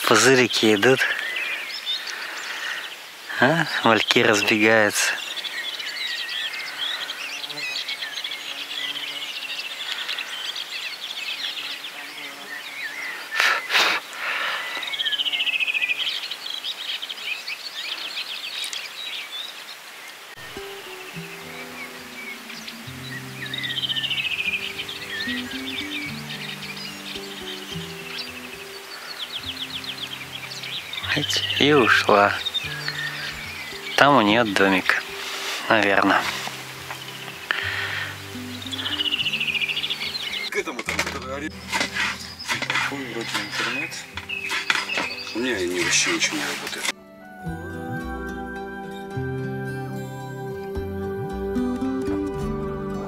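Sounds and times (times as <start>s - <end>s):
songbirds chirping and trilling: 0.0s - 47.0s
music of held low notes: 20.4s - 53.0s.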